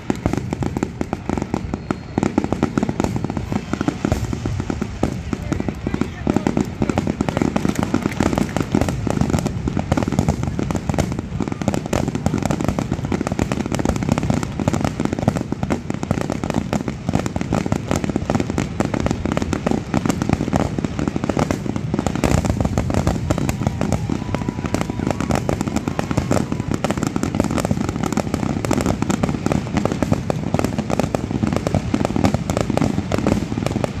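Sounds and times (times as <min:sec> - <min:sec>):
firework shells bursting: 0:00.0 - 0:12.9.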